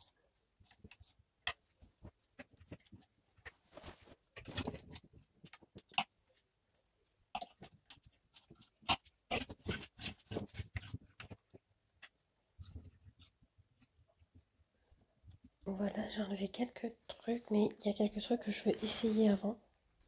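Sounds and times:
fabric rustling: 3.4 - 4.8.

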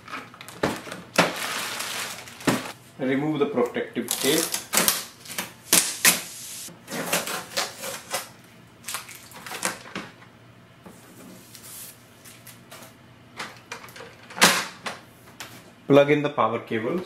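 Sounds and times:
paper rustling: 0.4 - 2.8
tape peeling off plastic: 4.1 - 6.4.

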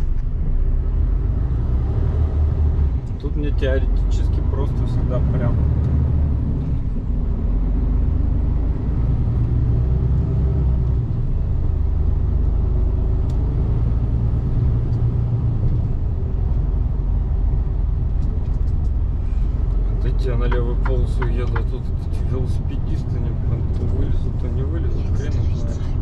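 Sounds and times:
diesel truck engine rumbling: 0.0 - 26.0
road noise: 0.0 - 26.0.

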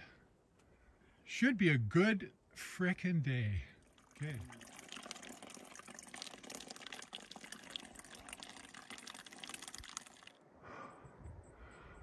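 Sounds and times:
trickling water: 3.6 - 10.4.

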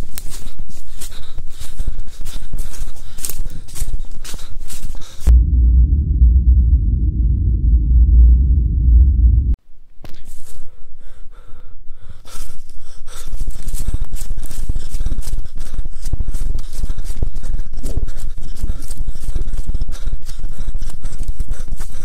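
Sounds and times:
person breathing hard: 0.0 - 5.3, 10.3 - 22.0
running through dead leaves: 0.0 - 5.3, 12.2 - 22.0
wind and handling rumble: 5.2 - 9.6.

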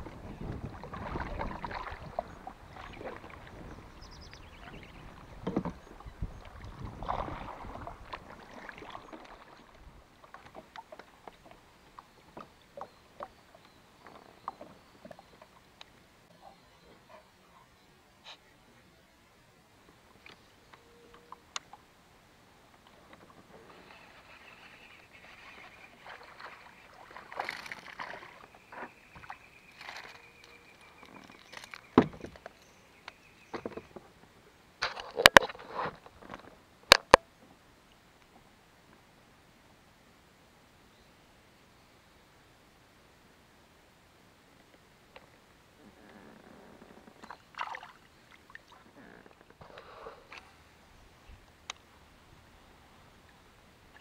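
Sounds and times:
water splashing against kayak: 0.0 - 13.4, 22.8 - 32.6, 47.0 - 50.7
light ticks and drips: 8.1 - 18.4, 19.8 - 21.9, 36.1 - 39.1, 44.5 - 50.5, 51.4 - 52.0.

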